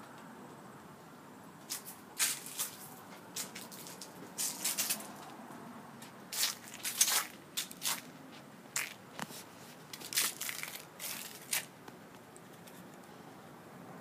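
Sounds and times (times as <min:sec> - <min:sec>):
footsteps on dry leaves: 0:01.7 - 0:05.2, 0:06.3 - 0:11.7.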